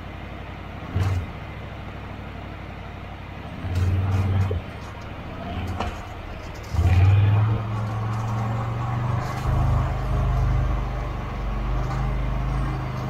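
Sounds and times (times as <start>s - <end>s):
atv engine revving: 3.4s - 13.0s.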